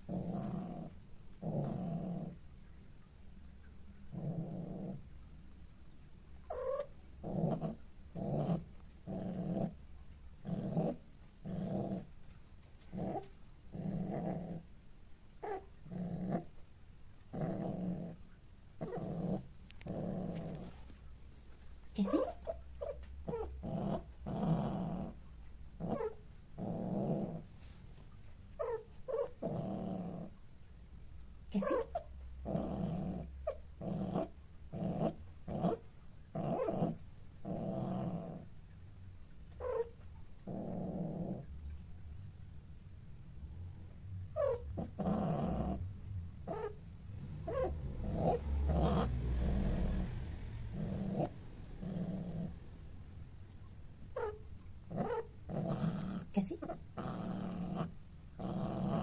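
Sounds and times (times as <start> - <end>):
cats growling: 0.0 - 2.4, 4.1 - 5.1, 6.5 - 9.8, 15.4 - 16.6, 18.8 - 21.0, 25.8 - 27.5, 28.6 - 30.4, 39.6 - 41.5, 44.4 - 52.8, 54.2 - 59.0.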